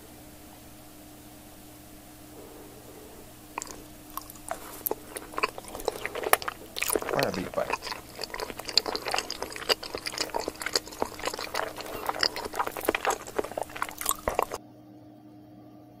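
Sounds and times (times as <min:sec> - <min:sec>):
faint steady hum: 0:00.0 - 0:14.6
close chewing clicks and smacks: 0:03.6 - 0:14.6.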